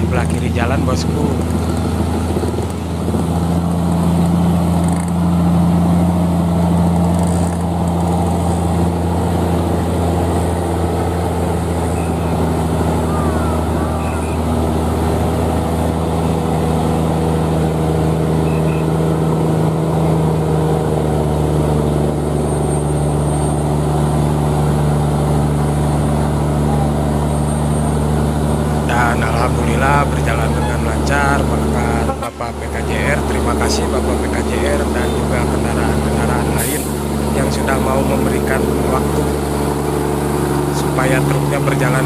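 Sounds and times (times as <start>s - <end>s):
truck diesel engine under load: 0.0s - 42.0s.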